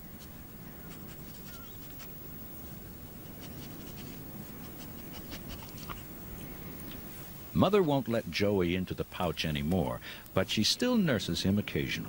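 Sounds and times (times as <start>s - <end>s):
scratchy rustling: 0.0s - 6.5s.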